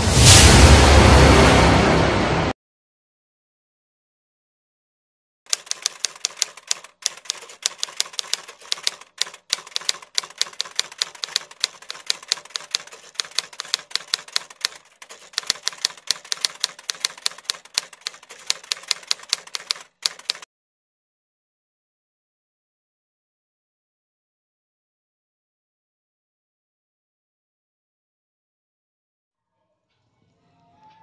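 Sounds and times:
typewriter keystroke clicks: 5.5 - 20.5.

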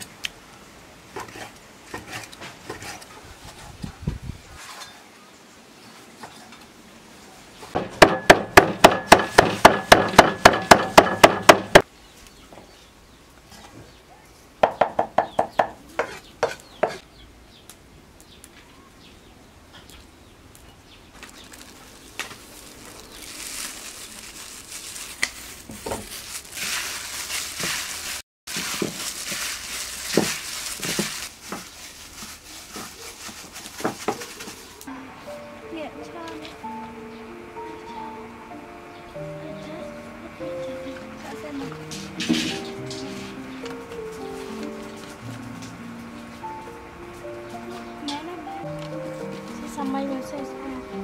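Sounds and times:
cleaver chopping on wooden block: 7.8 - 11.8
meat mixed by hand: 21.4 - 34.9.

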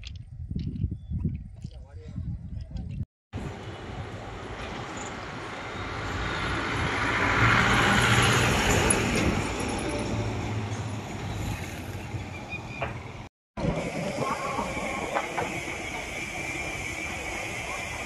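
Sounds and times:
train engine hum: 3.4 - 18.0
train wheels on rails: 12.8 - 18.0.

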